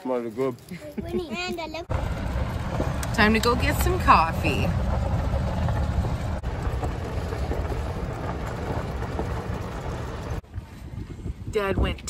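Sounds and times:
golf cart running: 1.7 - 10.6
wind buffeting microphone: 1.9 - 12.0.

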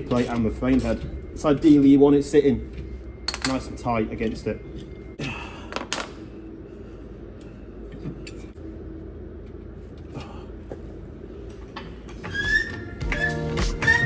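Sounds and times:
steady low hum: 0.0 - 12.4
music: 12.5 - 14.0.

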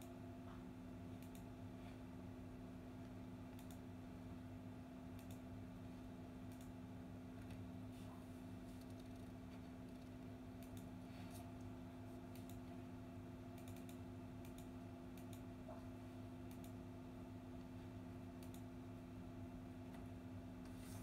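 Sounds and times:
faint steady hum: 0.0 - 21.0
light clicks: 5.2 - 5.4, 13.6 - 15.5, 16.5 - 16.8, 18.4 - 18.7.

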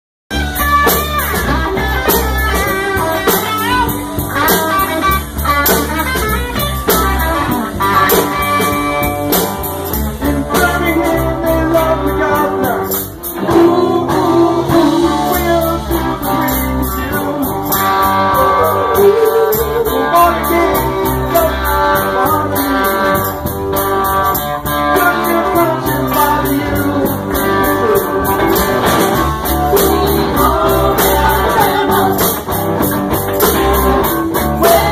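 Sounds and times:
drums beating: 0.3 - 34.9
electric guitars: 0.3 - 34.9
person singing: 10.2 - 23.4, 24.7 - 32.6, 33.4 - 34.9.

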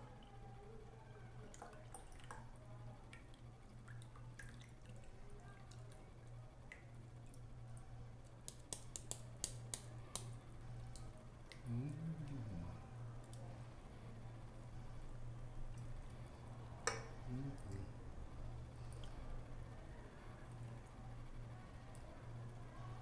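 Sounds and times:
low hum: 10.3 - 23.0.

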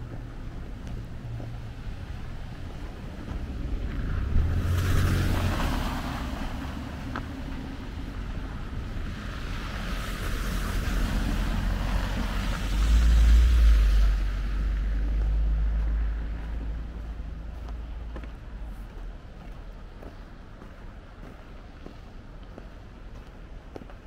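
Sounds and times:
car tyres hissing through slush: 3.5 - 16.0.

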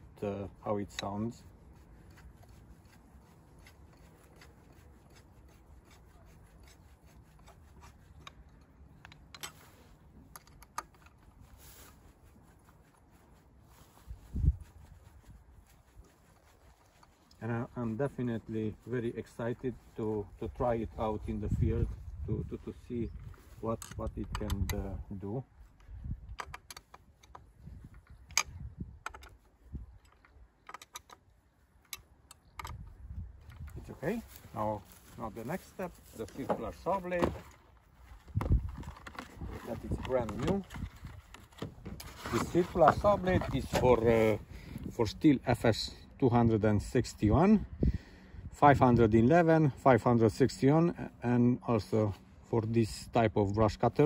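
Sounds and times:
light scraping: 33.5 - 45.2.

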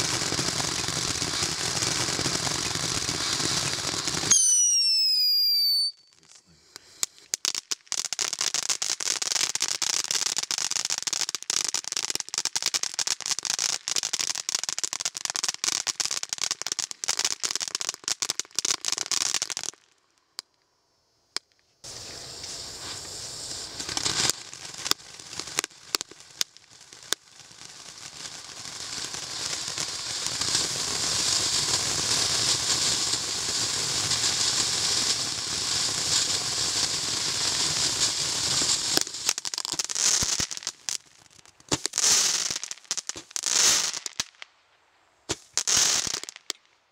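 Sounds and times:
falling firework whistle: 0.0 - 7.5, 21.4 - 44.4, 45.3 - 46.5
firework fountain crackling and hissing: 0.0 - 46.9.

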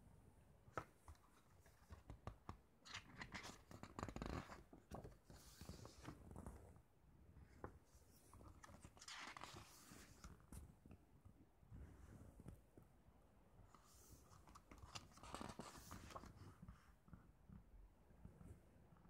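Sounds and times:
pages turning: 0.8 - 6.6, 7.6 - 10.5, 13.8 - 16.6
paper booklet rustling: 0.8 - 6.6, 7.6 - 10.6, 13.7 - 16.8.

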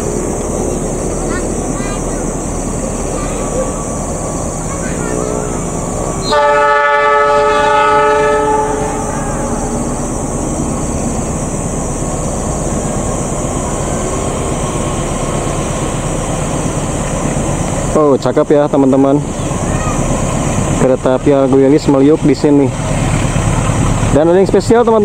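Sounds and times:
train running noise: 0.0 - 25.0
locomotive horn chord: 5.1 - 10.0.

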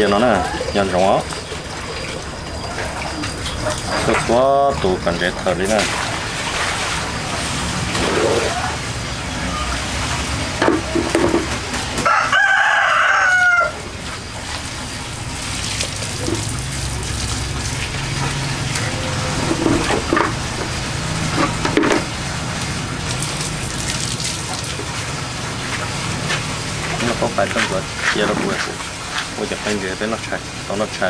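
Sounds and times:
rooster crowing: 12.0 - 13.9.

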